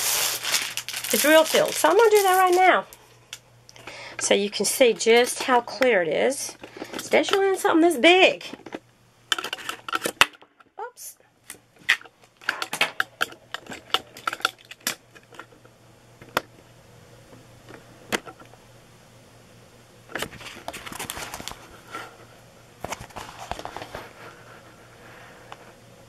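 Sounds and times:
plastic sheet crinkling: 0:00.0 - 0:03.0, 0:20.3 - 0:21.8, 0:22.8 - 0:24.3.

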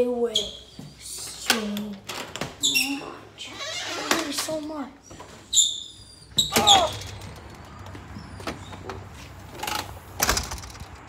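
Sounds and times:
door squeaking open: 0:02.1 - 0:04.5, 0:05.1 - 0:09.0.

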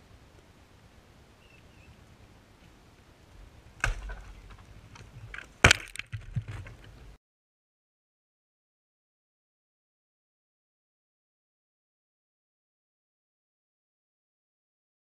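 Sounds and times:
falling wood knocks: 0:03.8 - 0:04.6, 0:05.3 - 0:07.0
tree trunk crashing down: 0:03.8 - 0:04.6, 0:05.6 - 0:06.7
wood cracking: 0:03.8 - 0:07.1.

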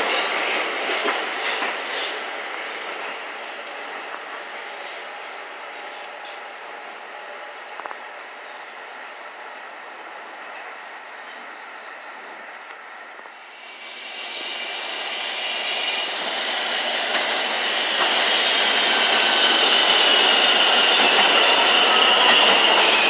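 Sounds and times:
subway train rolling: 0:00.0 - 0:23.0
steel wheels squealing: 0:13.5 - 0:23.0.

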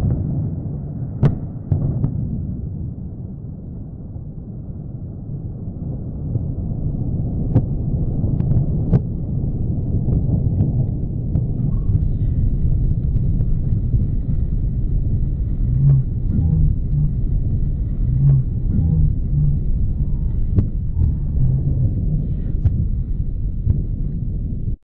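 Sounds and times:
deep rumble of fireball burning: 0:00.0 - 0:24.8
sharp cracks and pops: 0:01.2 - 0:02.2, 0:07.5 - 0:09.2.

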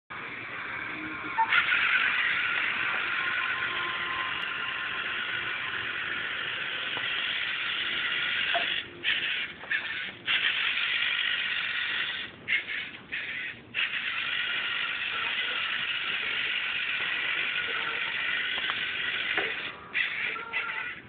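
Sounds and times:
robot servo motors whirring: 0:01.3 - 0:21.0.

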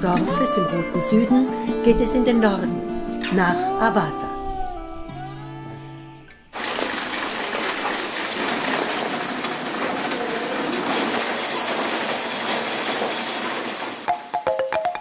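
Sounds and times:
electric sewing machines running: 0:06.6 - 0:14.1.

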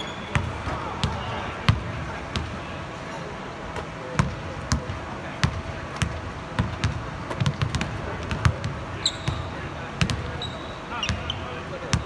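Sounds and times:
basketballs bouncing on hardwood: 0:00.3 - 0:02.5, 0:04.2 - 0:10.4.

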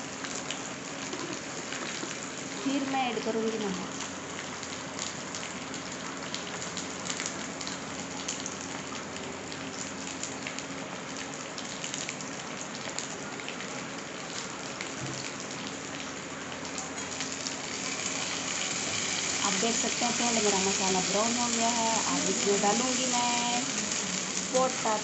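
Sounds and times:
food sizzling in hot oil: 0:00.0 - 0:09.1, 0:14.4 - 0:25.0
oil spitting crackle: 0:17.0 - 0:25.0.

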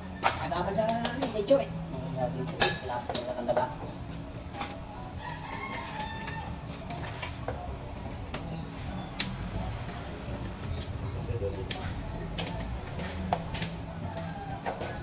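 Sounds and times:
rooster crowing: 0:05.2 - 0:06.7, 0:14.0 - 0:15.0.

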